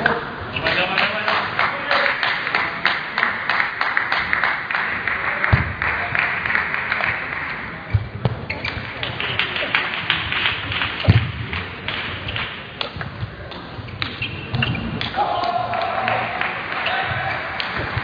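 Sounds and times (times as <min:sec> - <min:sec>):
voices in a hall: 0:00.0 - 0:18.0
applause: 0:00.7 - 0:07.9, 0:09.0 - 0:11.1, 0:15.4 - 0:18.0
table tennis balls bouncing: 0:07.9 - 0:18.0
low thumps: 0:11.0 - 0:15.2.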